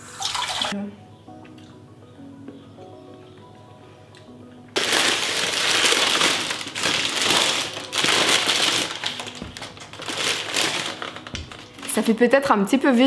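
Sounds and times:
soft background music: 0.0 - 13.0
paper bag crinkling: 4.8 - 12.2.

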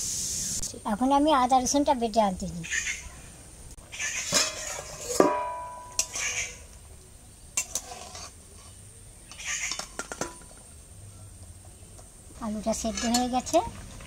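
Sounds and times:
ladle scraping in pot: 4.0 - 6.7, 7.6 - 10.5
metal lid clanging: 4.2 - 6.4, 7.6 - 8.3, 9.3 - 10.6, 12.8 - 13.5.

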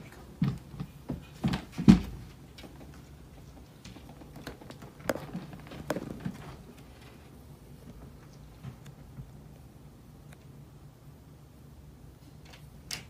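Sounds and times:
cat scrambling with knocks and scrapes: 0.0 - 7.3.

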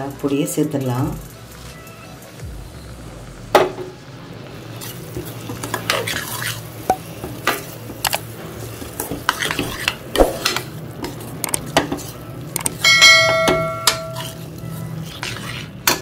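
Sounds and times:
faint sizzle of frying paste: 0.0 - 16.0
metal spoon scraping a pan: 4.7 - 16.0
spoon striking ringing pan: 12.6 - 14.2.

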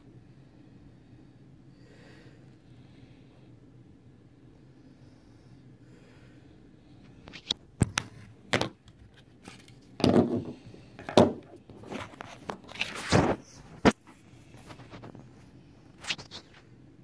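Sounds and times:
plastic model knocks and scrapes: 7.8 - 13.4.

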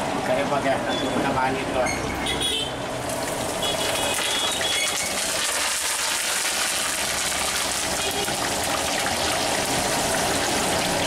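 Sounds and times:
food deep-frying in hot oil: 2.8 - 11.0.

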